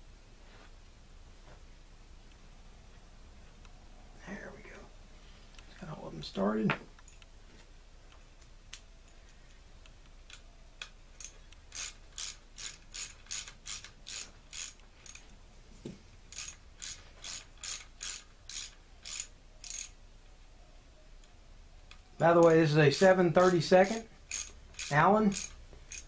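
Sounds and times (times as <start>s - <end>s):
ratchet wrench clicking: 10.3s - 15.2s, 16.3s - 20.0s, 22.4s - 26.0s.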